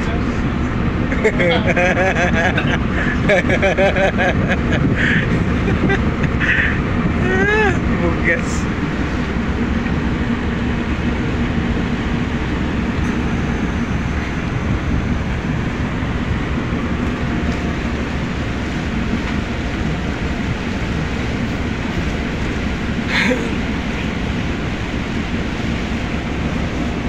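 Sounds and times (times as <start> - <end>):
diesel engine rumbling: 0.0 - 27.0
water churning against hull: 0.0 - 27.0.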